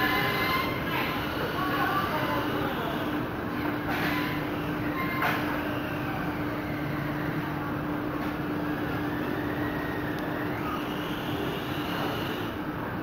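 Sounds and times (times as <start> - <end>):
constant low hum: 0.0 - 13.0
rumbling background noise: 0.0 - 13.0
toy car electric motor whine: 9.0 - 12.6.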